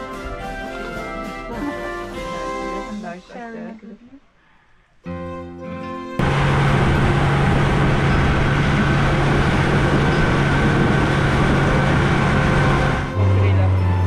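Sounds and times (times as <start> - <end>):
wind and water rushing: 6.2 - 13.1
boat motor humming: 6.2 - 14.0.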